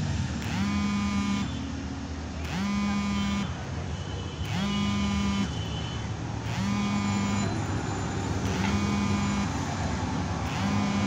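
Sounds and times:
street traffic: 0.0s - 11.0s
rising horn-like warning tone: 6.5s - 11.0s.

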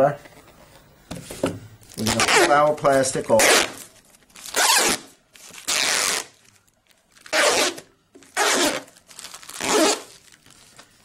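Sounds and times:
protective film ripping off panel: 7.2s - 10.4s.

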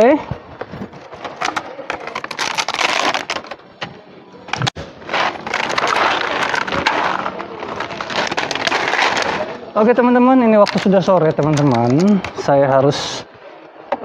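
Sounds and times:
plastic tray rattling: 1.0s - 3.6s, 4.5s - 9.5s, 10.6s - 12.4s
cat crunching dry kibble: 4.6s - 9.6s.

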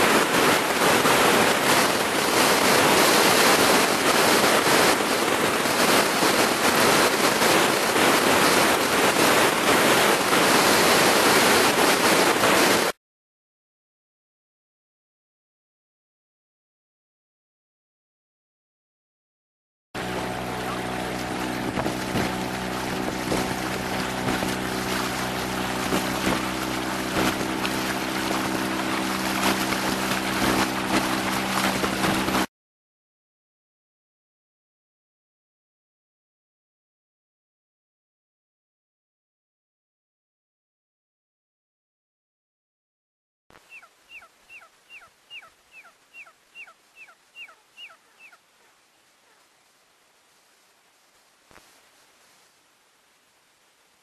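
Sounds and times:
motorboat engine running: 0.0s - 12.9s, 20.0s - 32.5s
water rushing: 0.0s - 12.9s, 20.0s - 32.5s
wind noise: 0.0s - 12.9s, 20.0s - 32.5s
bird whistling calls: 43.7s - 48.4s.

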